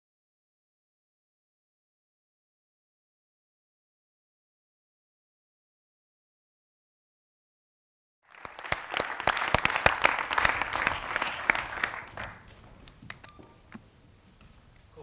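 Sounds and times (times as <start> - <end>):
audience applauding: 8.2 - 13.3.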